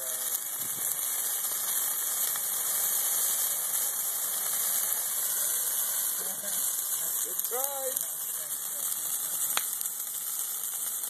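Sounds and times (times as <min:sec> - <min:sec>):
flames hissing and rushing: 0:00.0 - 0:11.0.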